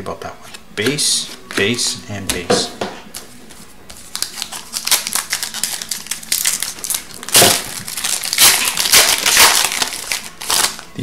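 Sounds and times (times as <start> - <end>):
foil wrapper crinkling and tearing: 4.0 - 10.9.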